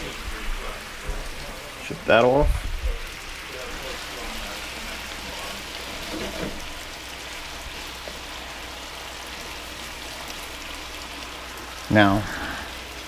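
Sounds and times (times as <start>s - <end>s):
food sizzling on stovetop: 0.0s - 13.0s.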